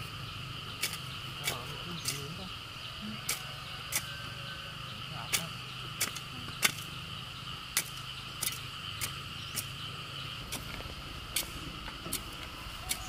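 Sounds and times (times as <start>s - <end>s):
crickets chirping: 0.0s - 13.0s
hoe chopping stony soil: 0.8s - 2.4s, 3.2s - 4.2s, 5.2s - 7.0s, 7.7s - 9.8s, 10.4s - 13.0s.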